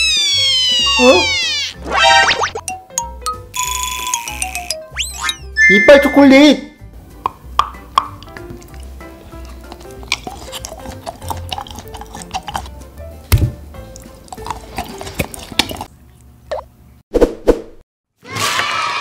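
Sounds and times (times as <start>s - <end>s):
background music: 0.7s - 15.8s
chewing chocolate candy: 8.0s - 13.1s, 13.8s - 16.3s.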